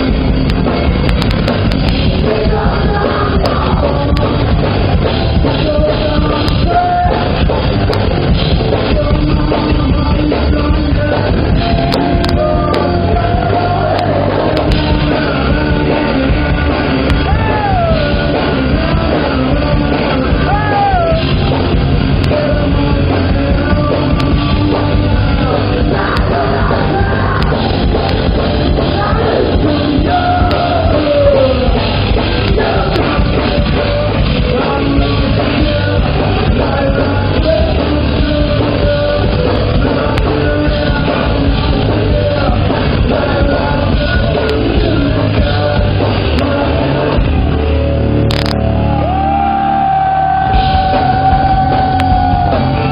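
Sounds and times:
man singing: 0.0 - 48.5, 49.8 - 52.9
drums: 0.0 - 52.9
electric guitars: 0.0 - 52.9.

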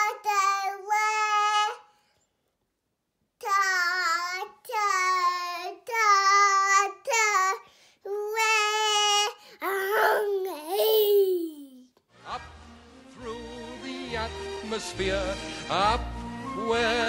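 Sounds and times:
boy singing held notes: 9.6 - 11.8.

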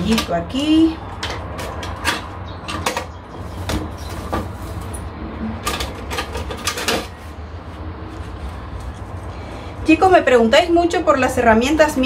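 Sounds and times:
gardening tools clicking and scraping: 0.0 - 7.4.

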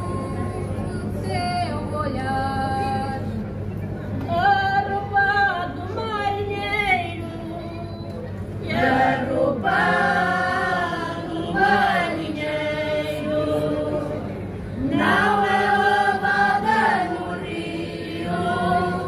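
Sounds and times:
mixed choir singing a cappella: 8.6 - 19.0.

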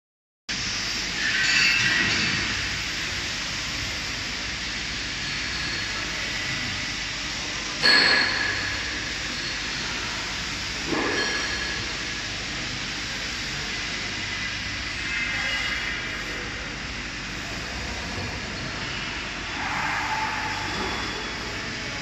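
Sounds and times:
metallic clank: 7.8 - 8.9.

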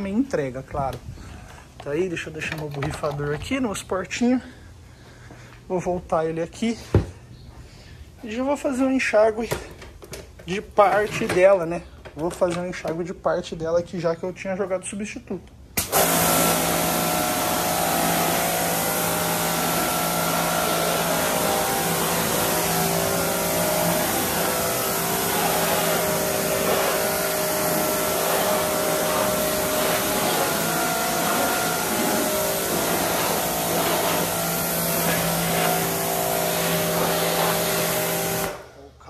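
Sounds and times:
pressure washer motor humming: 15.8 - 38.7
water jet hissing: 15.8 - 38.7.

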